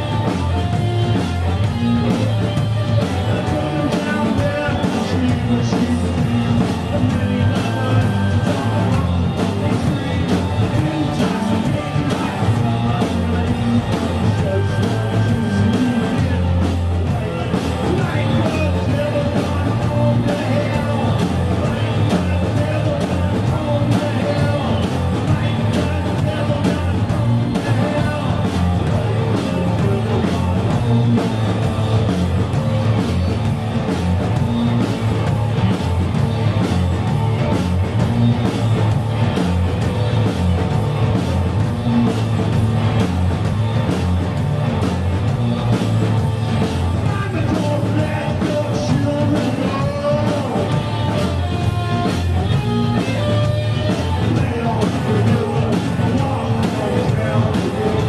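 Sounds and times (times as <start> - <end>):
person singing lead vocal: 0.0 - 33.1, 46.8 - 58.0
drums on floor toms: 0.0 - 58.0
electric guitar: 0.0 - 58.0.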